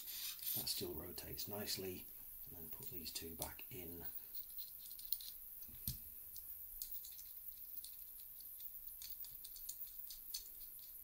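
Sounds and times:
small metal clicks and taps: 4.4s - 11.0s.

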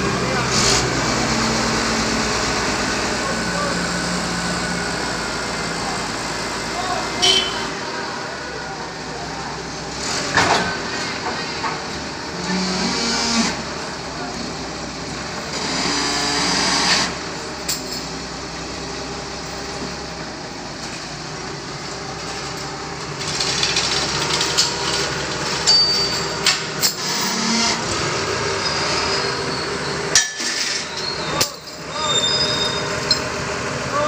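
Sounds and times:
forklift engine running: 0.0s - 34.0s
metal clanks from chains: 17.6s - 18.1s, 23.7s - 27.4s, 30.1s - 33.3s.

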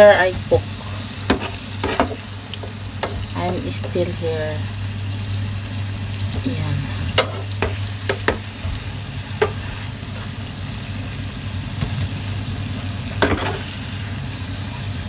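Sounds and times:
low steady hum: 0.0s - 15.0s
oil sizzling in a pan: 0.0s - 15.0s
utensil tapping a pan: 7.2s - 8.5s.

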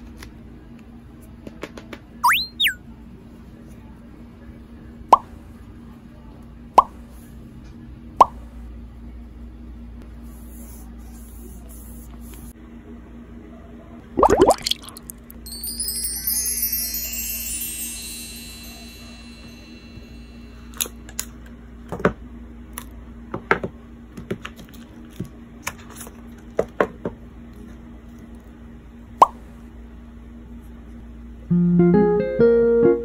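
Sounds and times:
chimes glissando: 14.6s - 21.1s.

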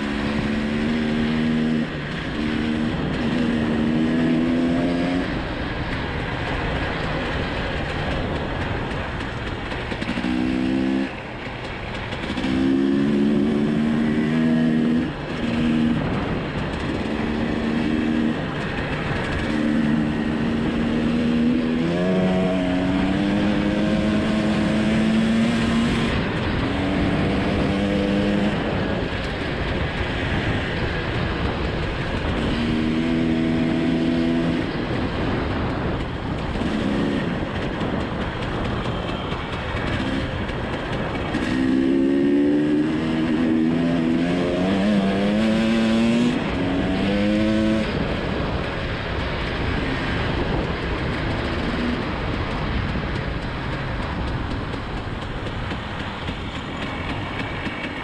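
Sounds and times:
dirt bike engine revving: 0.0s - 6.0s, 9.8s - 11.2s, 12.1s - 29.2s, 31.8s - 35.4s, 36.4s - 48.6s
wind rush and track noise: 0.0s - 58.0s.

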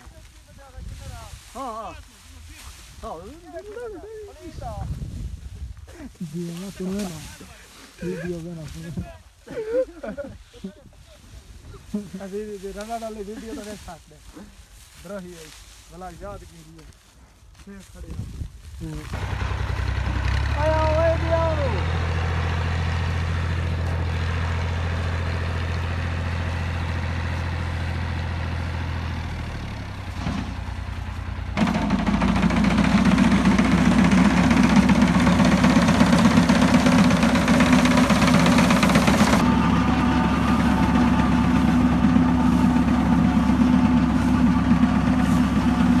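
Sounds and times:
tractor engine running: 19.0s - 46.0s
reaper cutting wheat: 29.3s - 46.0s.

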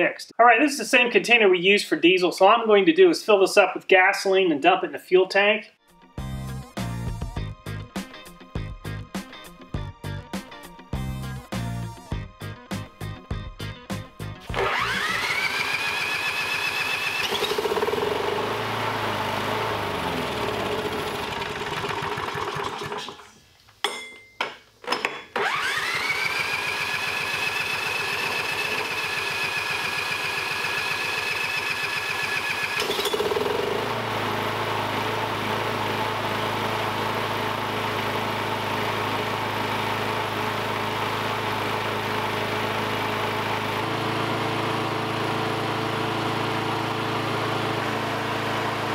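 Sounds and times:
lawn mower engine running: 14.4s - 23.3s, 25.3s - 48.9s
engine sputtering: 14.5s - 23.2s, 25.4s - 34.1s.

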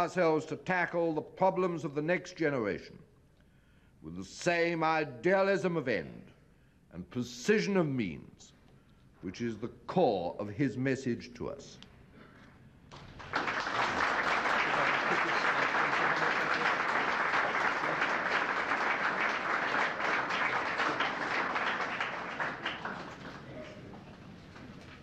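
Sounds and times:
audience applauding: 12.9s - 25.0s.

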